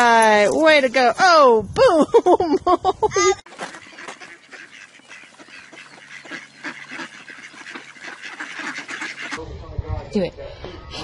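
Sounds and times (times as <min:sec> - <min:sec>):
ducks quacking: 0:03.5 - 0:09.5.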